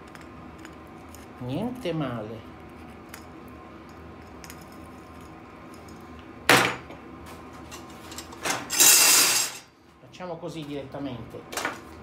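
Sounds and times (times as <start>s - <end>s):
handling metal parts: 7.7s - 9.6s.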